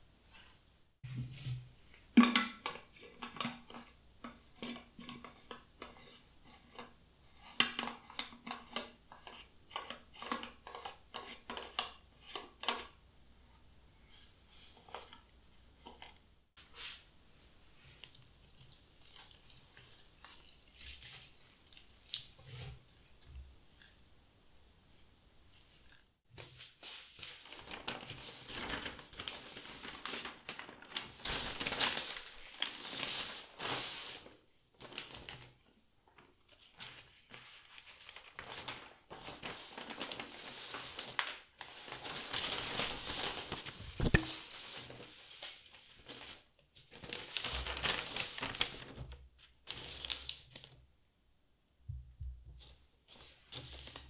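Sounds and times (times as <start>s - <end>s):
newspaper rustling and crinkling: 17.8s - 22.9s, 26.4s - 50.8s.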